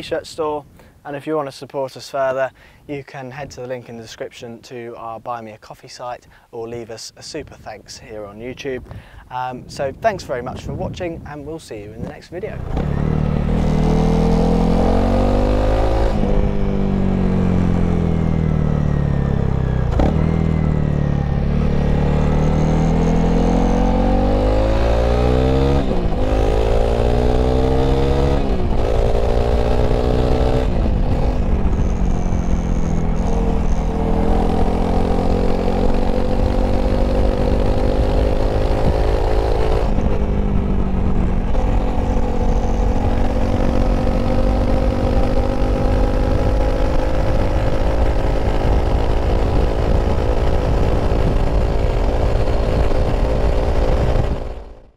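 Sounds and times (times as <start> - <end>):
motorcycle engine accelerating: 12.5 - 54.9.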